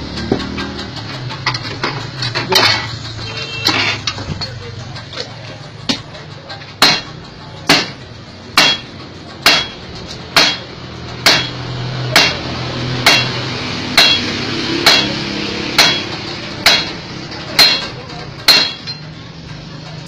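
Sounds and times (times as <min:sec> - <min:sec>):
hammer striking steel on anvil: 0:06.7 - 0:19.2.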